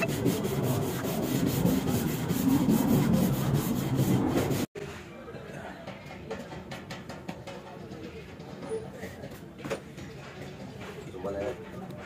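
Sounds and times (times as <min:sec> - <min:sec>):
rubbing scraping strokes: 0:00.0 - 0:04.7.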